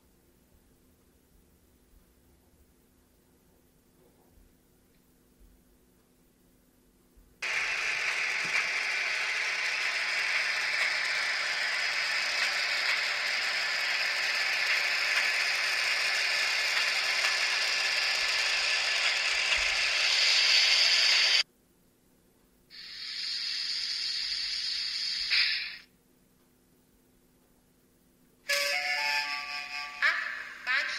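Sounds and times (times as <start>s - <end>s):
air-release hiss: 7.4s - 21.4s, 22.7s - 25.9s
rail-joint clicking: 7.4s - 21.4s.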